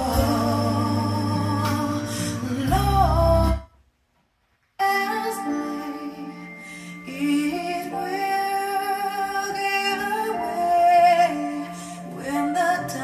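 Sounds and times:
music with singing voice: 0:00.0 - 0:13.0.

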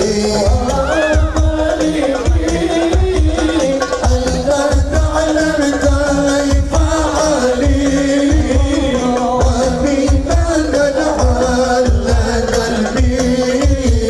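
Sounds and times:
devotional song singing: 0:00.0 - 0:14.0.

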